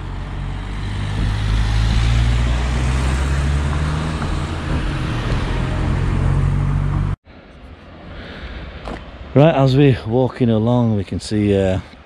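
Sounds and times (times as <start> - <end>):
cars driving past: 0.0 - 9.6.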